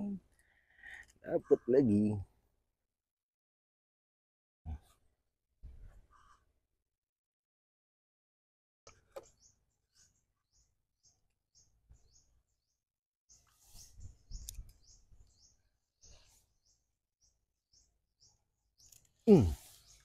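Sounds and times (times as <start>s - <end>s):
small bird chirping: 8.9s - 20.0s.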